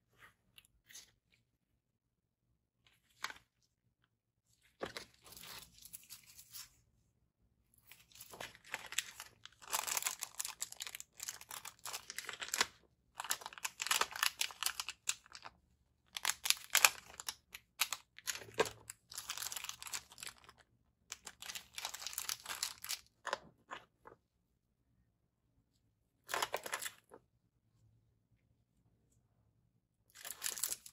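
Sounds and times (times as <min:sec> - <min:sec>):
packaging crinkling and tearing: 0:08.1 - 0:15.5, 0:16.2 - 0:20.5, 0:21.1 - 0:23.1, 0:30.2 - 0:30.9.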